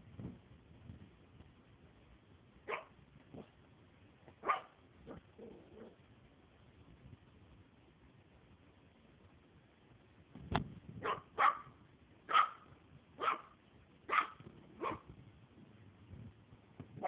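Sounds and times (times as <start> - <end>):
puppy barking: 2.6 - 3.0, 4.4 - 5.2, 11.0 - 15.1.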